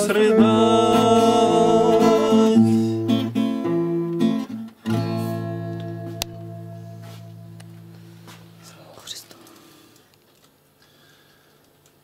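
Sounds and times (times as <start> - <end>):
man singing: 0.0 - 3.2
acoustic guitar strumming: 0.0 - 8.6.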